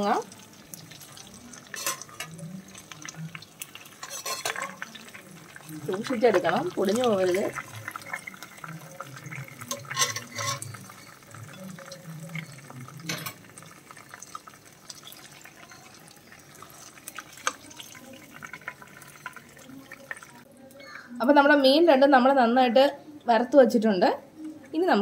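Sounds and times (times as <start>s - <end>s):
oil sizzling and crackling: 0.0s - 20.5s
spatula scraping pan: 3.9s - 4.9s, 9.6s - 11.0s.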